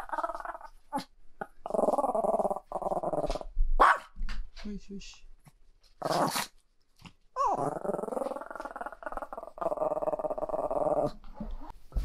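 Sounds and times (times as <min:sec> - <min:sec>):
dog whining: 0:07.4 - 0:07.8.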